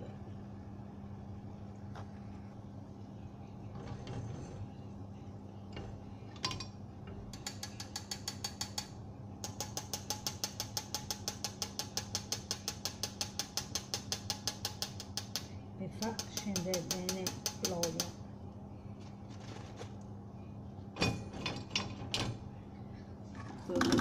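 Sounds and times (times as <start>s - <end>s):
low steady hum: 0.0s - 24.0s
metal spoon tapping wire skimmer: 5.7s - 18.2s.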